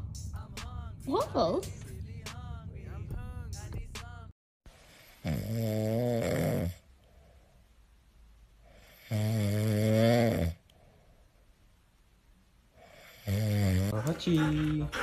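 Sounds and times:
dog snoring: 4.9 - 6.8, 8.7 - 10.6, 12.8 - 15.0
soft breathing: 6.9 - 7.9, 10.6 - 11.7.

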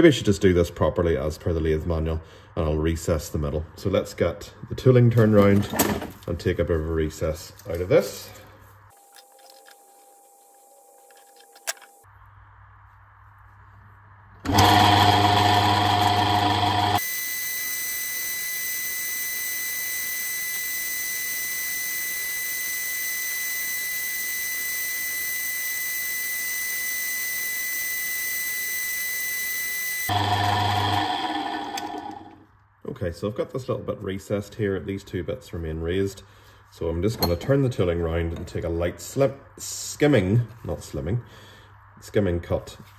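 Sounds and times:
metal lathe running: 14.5 - 17.0, 30.1 - 32.4.

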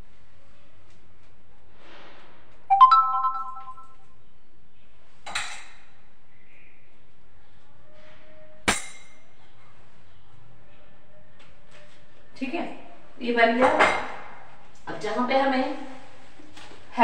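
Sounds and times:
electronic notification chime: 2.7 - 3.9.

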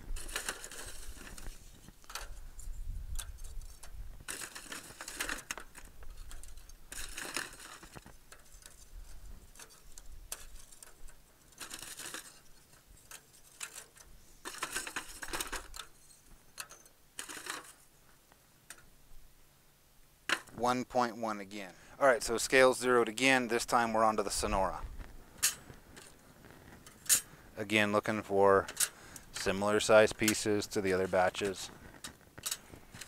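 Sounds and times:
charcoal clattering into metal: 4.2 - 8.8, 9.5 - 15.9.

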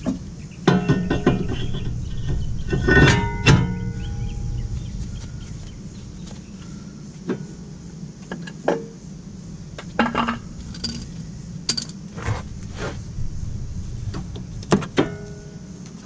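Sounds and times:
metal tools and car parts clanking: 0.7 - 4.1, 10.0 - 12.4.

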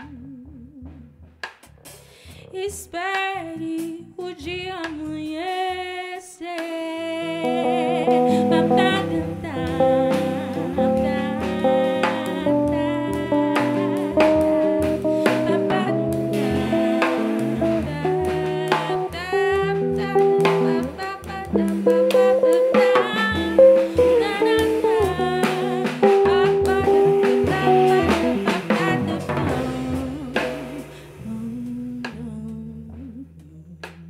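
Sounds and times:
woman singing: 0.0 - 1.2, 2.2 - 34.0
electric bass: 0.0 - 6.0, 7.0 - 34.0
drum kit: 0.0 - 34.0.

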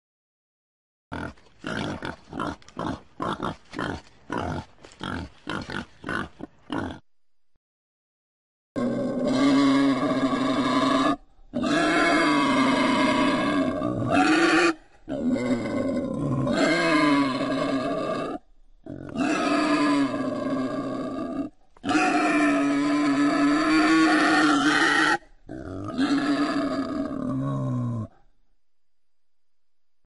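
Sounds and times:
wild boar calls: 8.8 - 28.2.

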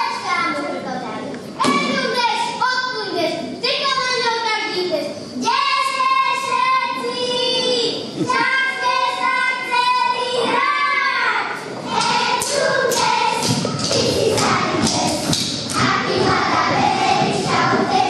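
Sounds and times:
children singing: 5.9 - 18.0.

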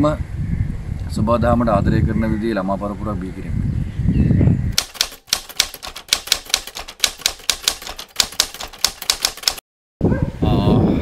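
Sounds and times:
rapid sharp clicks: 4.8 - 9.6.

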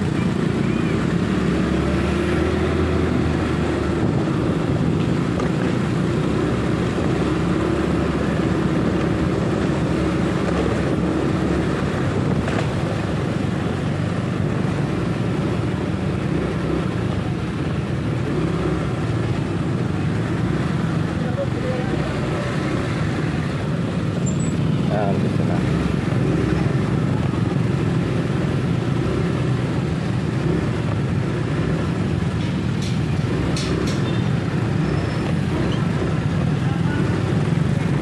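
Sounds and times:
motorcycle engines running: 0.0 - 38.0
road noise: 0.0 - 38.0.

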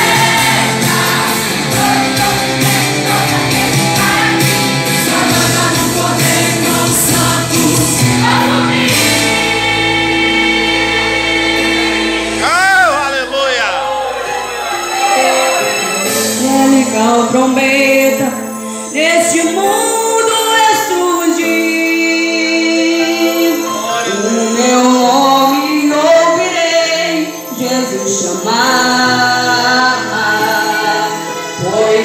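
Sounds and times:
youth choir singing: 0.0 - 18.4, 19.4 - 32.0.

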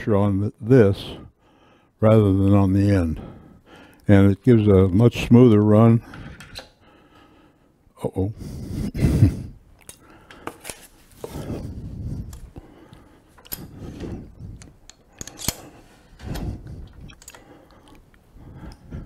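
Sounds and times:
metal clicks and scrapes: 13.4 - 18.0.

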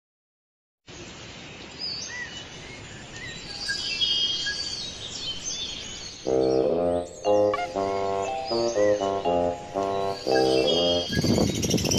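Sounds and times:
small birds chirping and twittering: 0.9 - 11.9.

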